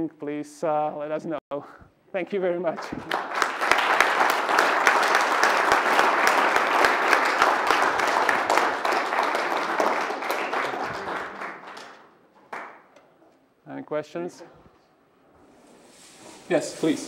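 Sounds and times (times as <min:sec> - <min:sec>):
audience applauding: 0:02.8 - 0:12.9.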